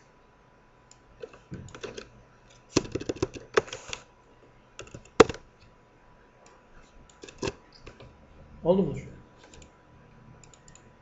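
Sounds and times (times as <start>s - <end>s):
keyboard typing: 1.2s - 2.1s, 2.8s - 4.1s, 4.8s - 5.4s, 10.4s - 10.9s.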